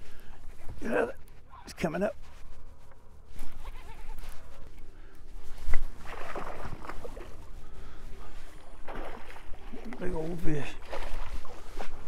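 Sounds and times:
water sloshing and splashing: 2.8 - 12.0.

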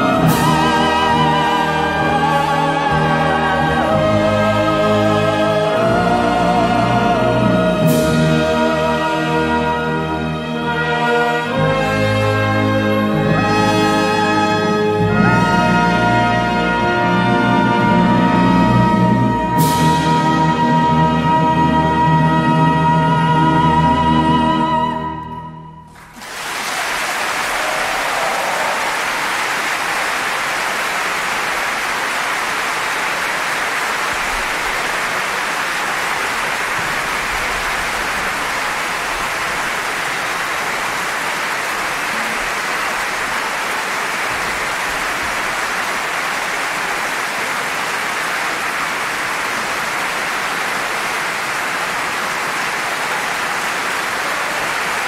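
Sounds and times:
audience applauding: 0.0 - 3.4, 25.9 - 55.0.

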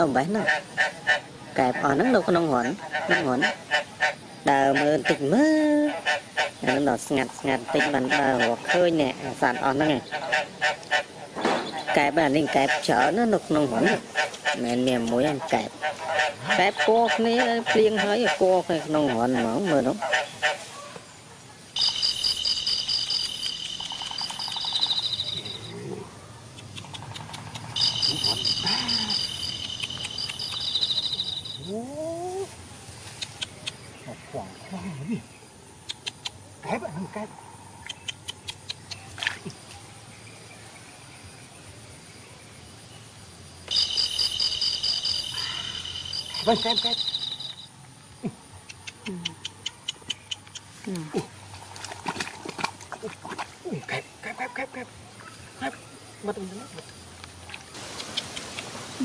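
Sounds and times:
insects trilling: 0.0 - 59.0
lower animal call: 21.8 - 32.6, 43.7 - 48.4.

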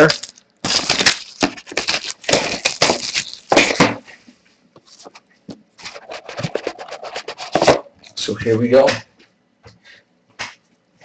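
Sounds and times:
plastic shrink-wrap crinkling: 0.0 - 4.0, 4.8 - 5.2.

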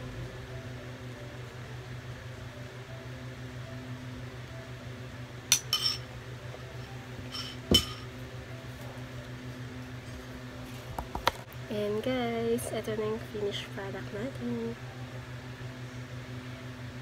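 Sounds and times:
low hum: 0.0 - 17.0
spoon and dish clinking: 5.5 - 6.1, 7.3 - 8.1.

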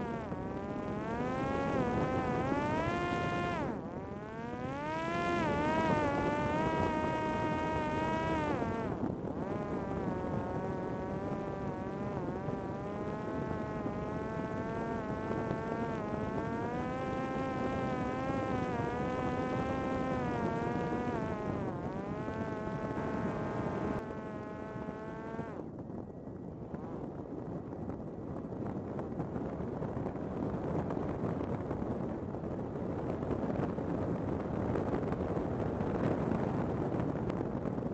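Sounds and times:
drone motor buzzing: 0.0 - 25.6.

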